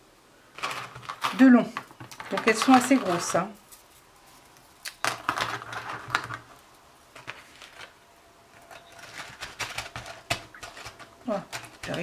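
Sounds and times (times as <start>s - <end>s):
plastic packet crinkling: 0.5s - 3.6s.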